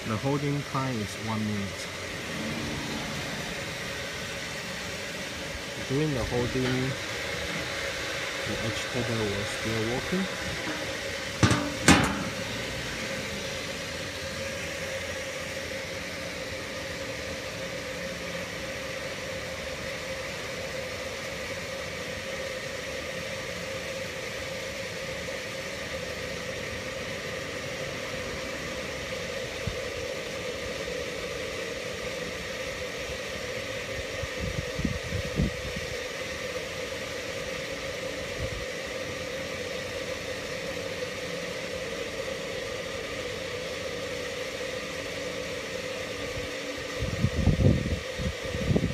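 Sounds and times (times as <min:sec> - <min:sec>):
motor humming: 0:01.7 - 0:15.2.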